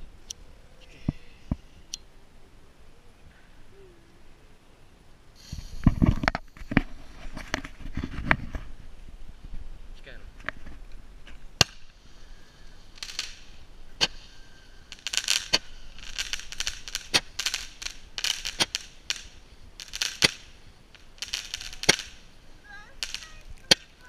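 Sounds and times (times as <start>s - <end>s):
firework crackle and bangs: 5.4s - 9.7s, 10.3s - 24.0s.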